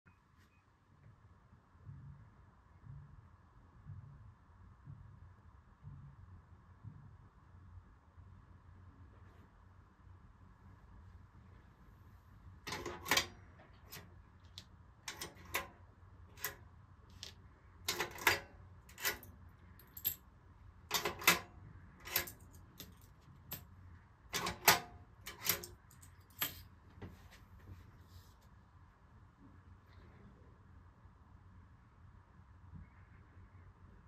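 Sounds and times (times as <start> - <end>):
coin changer lever clacking: 12.7 - 13.3, 15.1 - 15.8, 17.9 - 19.3, 20.9 - 22.9, 24.3 - 26.0
coins clinking on table: 12.7 - 13.3, 17.9 - 20.2, 20.9 - 21.4, 22.0 - 23.6, 24.4 - 26.7.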